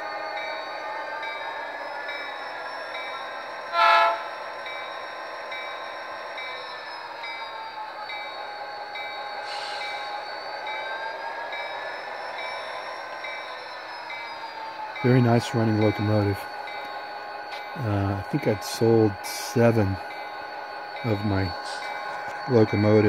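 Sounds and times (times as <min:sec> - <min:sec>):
locomotive horn blast: 0:03.7 - 0:04.3.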